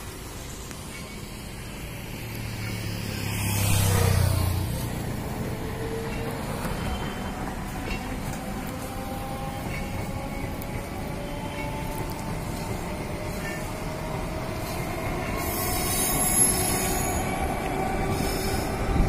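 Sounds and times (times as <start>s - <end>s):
train rumble: 0.0s - 19.0s
train rushing past: 0.0s - 19.0s.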